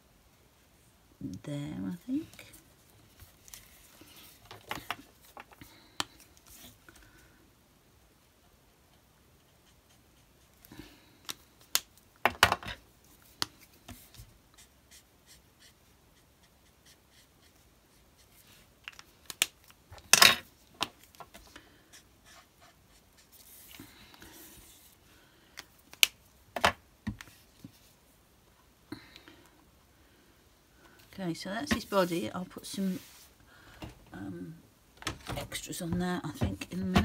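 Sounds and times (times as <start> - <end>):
soft rustle: 2.0 - 7.3, 30.8 - 33.4.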